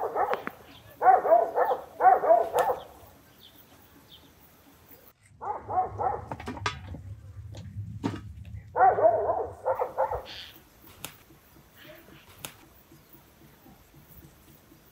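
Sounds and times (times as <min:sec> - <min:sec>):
dog barking: 0:00.0 - 0:03.1, 0:05.4 - 0:06.4, 0:08.7 - 0:10.4.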